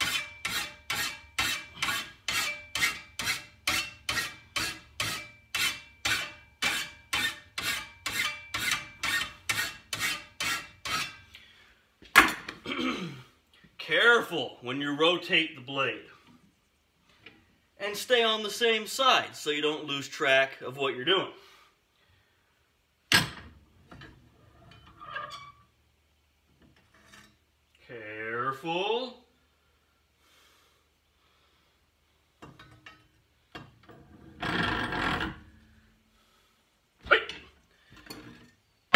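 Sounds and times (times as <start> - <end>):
hand file rasping on metal blade: 0.0 - 11.2
ringing metal scrape: 0.0 - 11.2.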